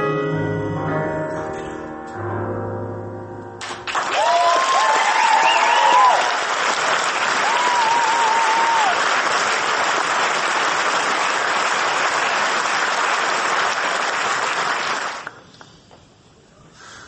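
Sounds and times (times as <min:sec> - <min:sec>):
audience applauding: 0:03.6 - 0:15.4
crowd whooping: 0:04.0 - 0:09.2.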